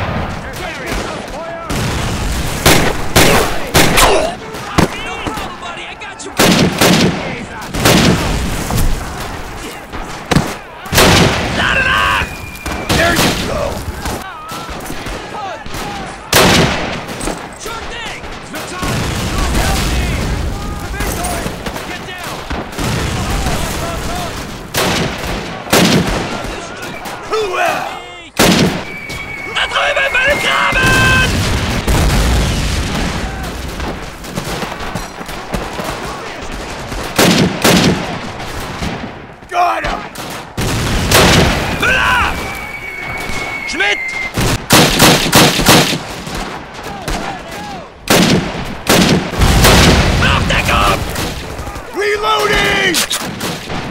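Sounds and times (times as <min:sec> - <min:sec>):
gunfire: 0:00.0 - 0:05.7, 0:06.3 - 0:27.5, 0:28.4 - 0:53.9
loud blasts: 0:00.0 - 0:53.9
loud gunshots: 0:00.0 - 0:53.9
soldiers shouting: 0:03.1 - 0:07.8, 0:09.0 - 0:16.7, 0:25.3 - 0:31.4, 0:39.4 - 0:40.2, 0:41.5 - 0:44.3, 0:46.8 - 0:48.1, 0:50.2 - 0:53.1.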